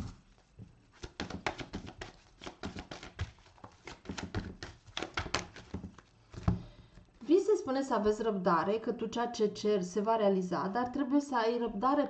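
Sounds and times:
cards being shuffled: 0.0 - 6.6.

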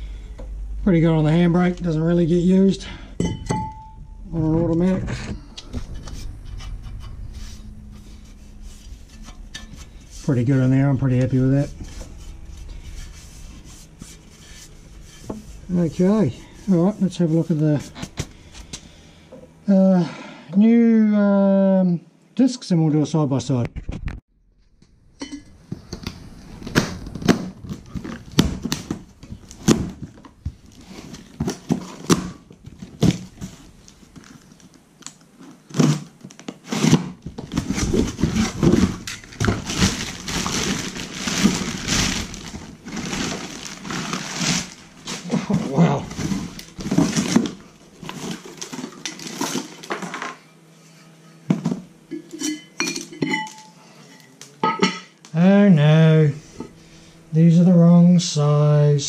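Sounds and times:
cardboard and wrapping rustling: 4.3 - 19.0, 25.6 - 50.2
tools and metal parts clinking: 52.1 - 55.1.

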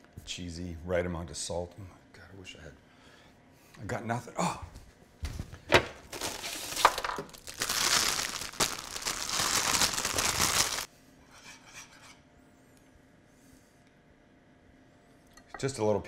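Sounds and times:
plastic bag crinkling: 6.0 - 10.9.

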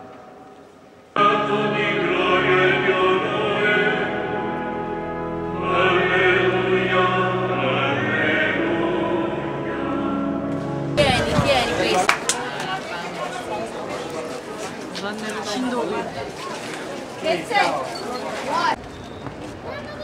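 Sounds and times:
choir singing a slow chant: 1.1 - 11.0.

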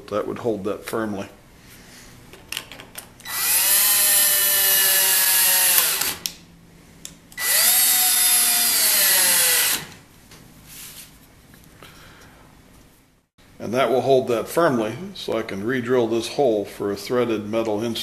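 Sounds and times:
power drill driving screws: 3.2 - 6.3, 7.4 - 10.0.

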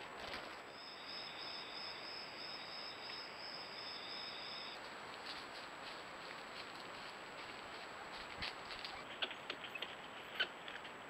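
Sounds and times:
background hiss: 0.0 - 11.0
light rustles or clicks: 8.2 - 11.0.

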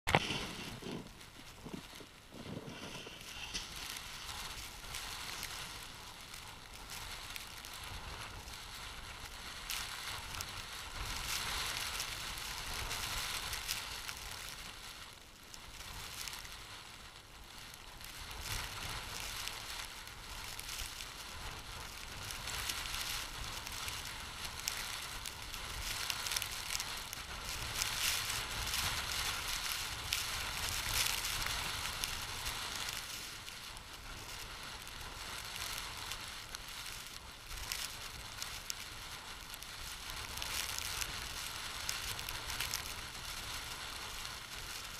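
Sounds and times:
wind buffeting a microphone: 0.1 - 15.0.

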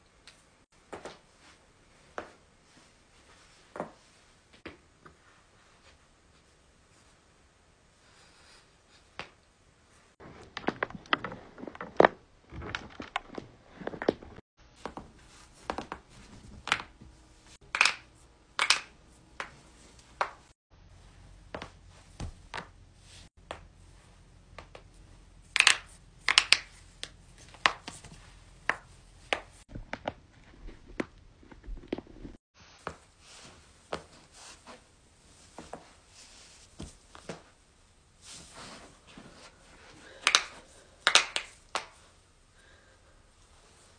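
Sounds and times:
joints cracking and popping: 10.2 - 14.4, 25.5 - 27.9.

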